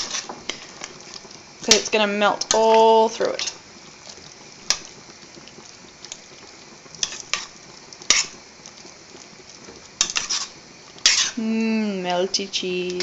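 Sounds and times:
faint sizzle: 0:00.0 - 0:13.0
spoon clinking and scraping a pan: 0:07.0 - 0:07.5, 0:08.1 - 0:08.4, 0:10.0 - 0:11.4.

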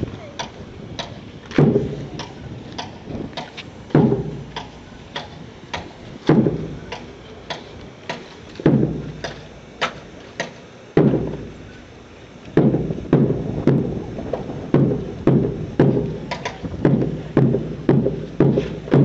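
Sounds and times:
rifles and boots knocking: 0:14.8 - 0:19.0.

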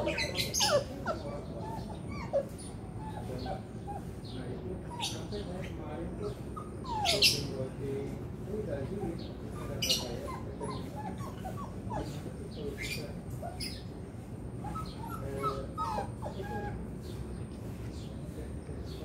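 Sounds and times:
dogs whimpering: 0:00.0 - 0:07.8, 0:08.8 - 0:17.4.

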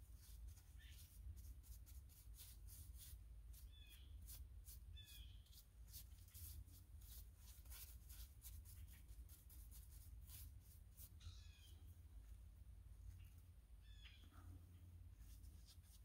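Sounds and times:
bird chirping: 0:03.6 - 0:04.3, 0:04.9 - 0:05.6, 0:11.1 - 0:12.0, 0:13.0 - 0:14.9.

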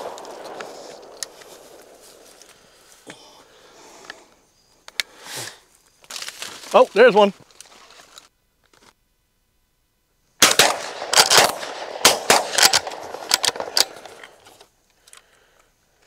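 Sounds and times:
shotguns firing: 0:00.0 - 0:02.6, 0:10.4 - 0:14.4.

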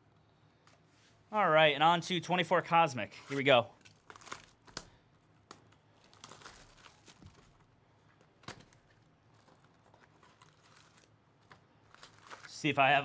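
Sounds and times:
plastic wrap crinkling: 0:03.1 - 0:13.0.

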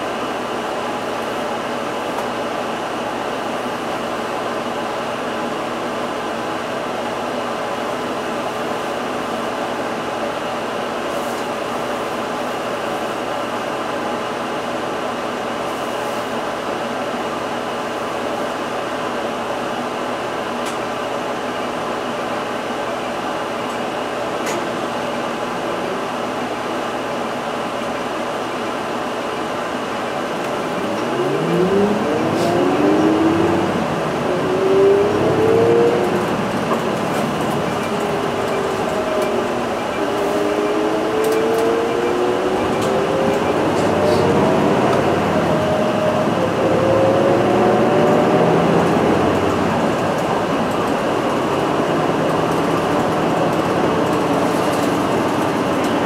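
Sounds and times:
bus motor whine rising: 0:25.5 - 0:56.0.

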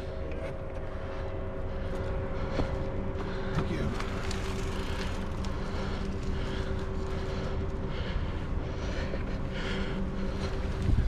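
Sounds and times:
steady hum: 0:00.0 - 0:11.0
bike clicks and rattles: 0:02.0 - 0:08.2
wind on microphone: 0:10.8 - 0:11.0.

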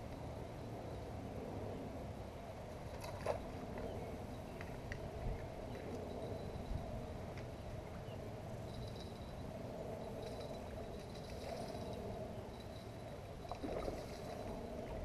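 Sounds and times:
lakeside ambience: 0:00.0 - 0:15.0
wind rumbling on microphone: 0:00.7 - 0:15.0
water splashing: 0:13.4 - 0:14.8.

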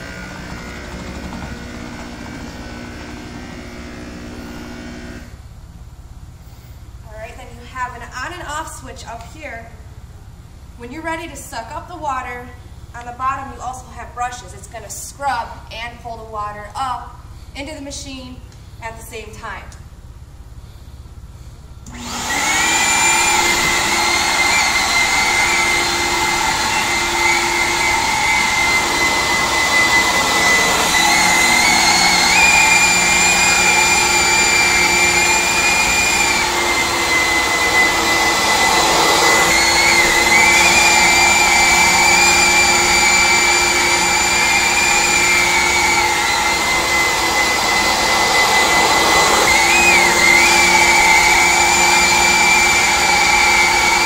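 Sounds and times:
carpet extractor whining: 0:00.0 - 0:05.5, 0:21.8 - 0:54.0.

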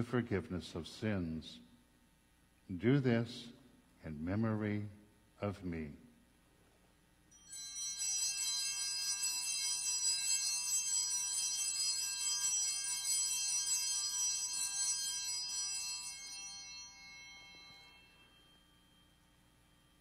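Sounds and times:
altar bells jingling: 0:07.3 - 0:20.0.

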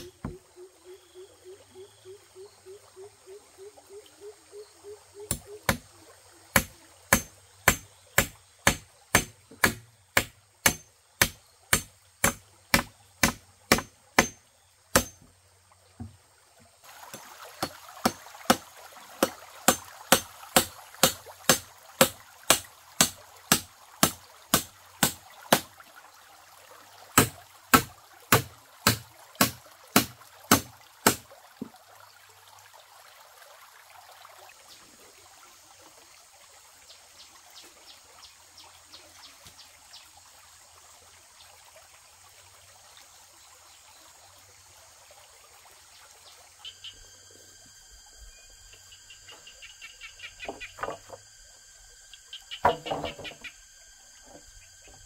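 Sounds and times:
running stream water: 0:00.0 - 0:55.0
hand tool striking: 0:06.6 - 0:15.3, 0:19.2 - 0:25.6, 0:27.2 - 0:31.2.

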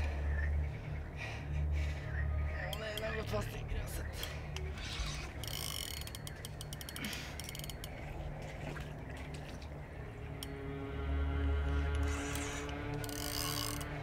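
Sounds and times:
fishing reel clicking: 0:04.7 - 0:08.1, 0:12.0 - 0:14.0.

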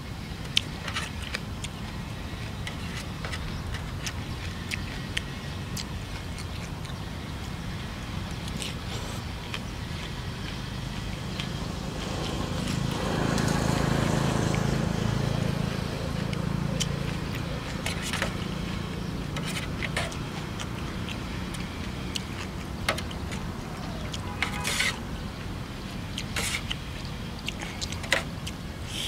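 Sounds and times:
low engine hum: 0:00.0 - 0:29.0
noodles slurped: 0:08.5 - 0:12.4
spoon scraping metal tray: 0:24.3 - 0:25.0.

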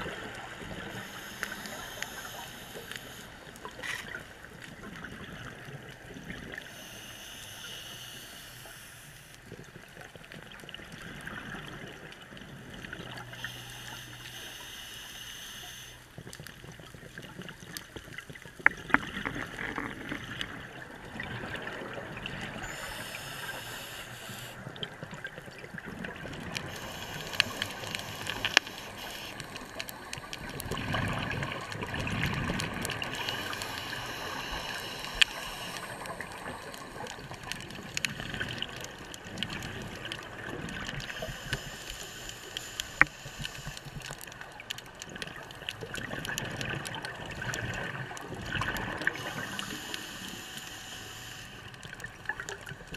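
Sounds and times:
steady hiss: 0:00.1 - 0:04.2, 0:06.6 - 0:09.5, 0:13.3 - 0:16.2, 0:22.6 - 0:24.6, 0:26.5 - 0:44.5, 0:48.9 - 0:52.0
diver's exhaled bubbles gurgling: 0:16.5 - 0:22.9, 0:24.5 - 0:41.7, 0:44.0 - 0:50.4.

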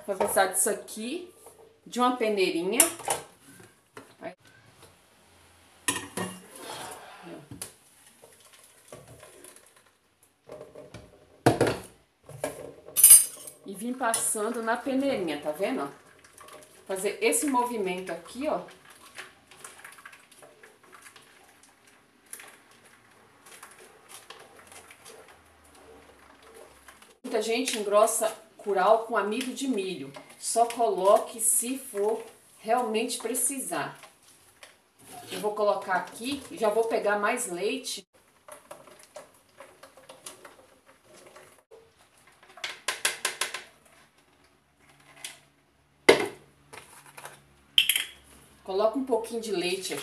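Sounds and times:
spoon scraping plastic sieve: 0:35.0 - 0:37.0, 0:46.7 - 0:47.5
plastic kitchenware clicks and scraping: 0:38.3 - 0:48.1.

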